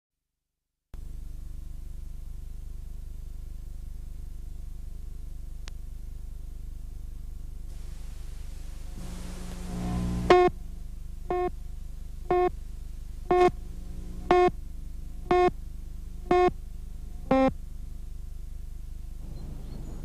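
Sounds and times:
steady low hum: 1.0s - 20.0s
countdown beeps: 11.3s - 11.5s, 12.3s - 12.5s, 13.3s - 13.6s, 14.3s - 14.5s, 15.3s - 15.5s.

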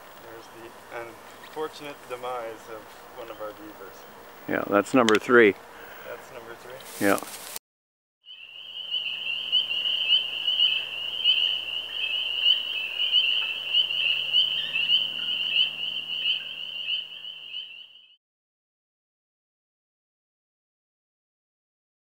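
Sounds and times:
chorus of frogs calling: 8.3s - 18.2s.

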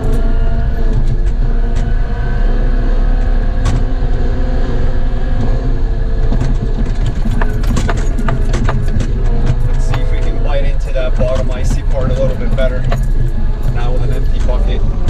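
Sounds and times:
diesel engine running: 0.0s - 15.0s
sharp rattling clicks: 6.2s - 15.0s.

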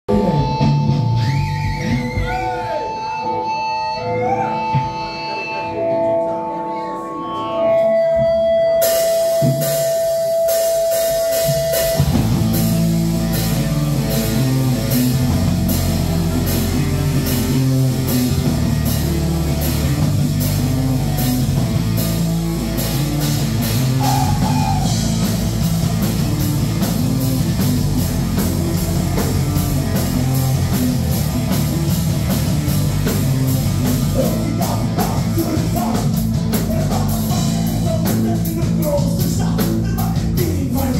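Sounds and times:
rock band playing: 0.1s - 40.9s
drums and cymbals: 8.2s - 40.9s.

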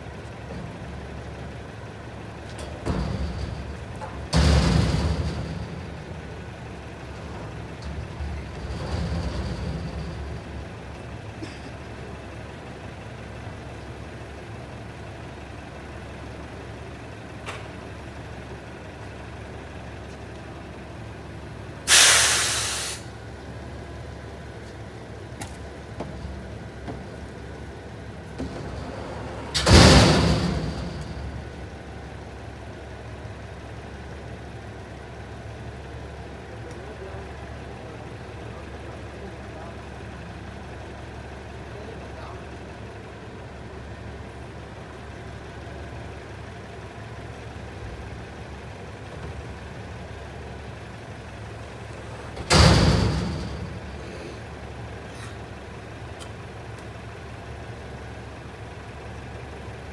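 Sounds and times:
garbage truck diesel engine idling: 0.0s - 59.9s
air brake hiss: 21.9s - 23.1s, 55.1s - 55.4s.

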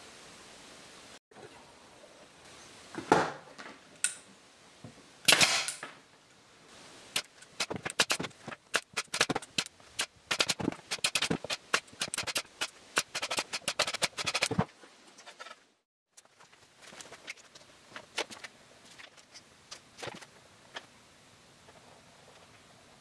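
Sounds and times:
pneumatic nailer pops: 5.3s - 5.8s.

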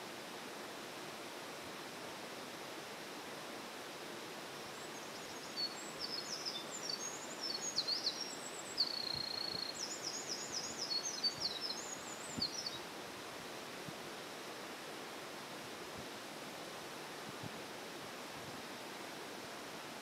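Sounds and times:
bird singing trills: 4.8s - 12.8s
stream rushing: 9.9s - 20.0s.

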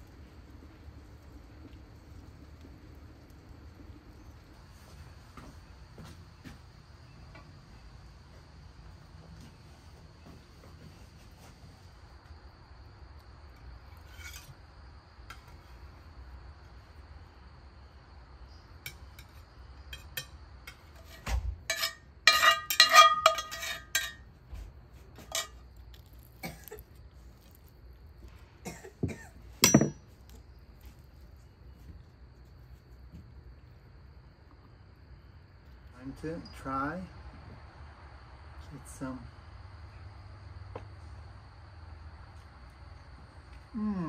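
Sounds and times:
tableware clinking and clattering: 20.0s - 24.2s, 29.0s - 30.0s.

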